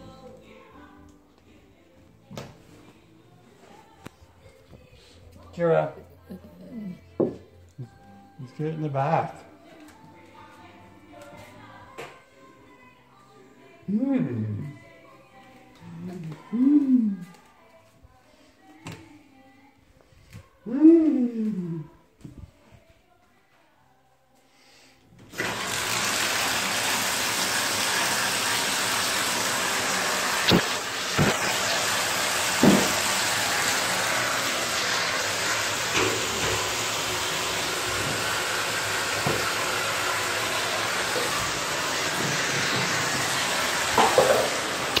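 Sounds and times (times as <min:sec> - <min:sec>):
water running from bath tap: 0:25.3 - 0:45.0.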